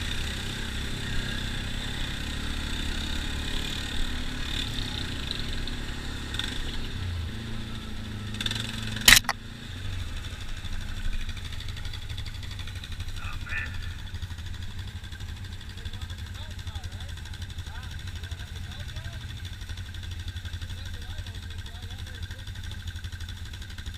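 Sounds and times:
quad bike engine running: 0.0s - 23.9s
sharp knock: 9.1s - 9.3s.

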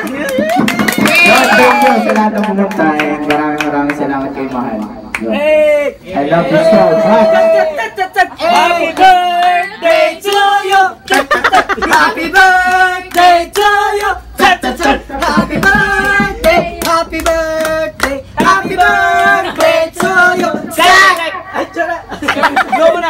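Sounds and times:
hands clapping: 0.0s - 5.3s, 10.2s - 14.1s, 14.8s - 21.3s.

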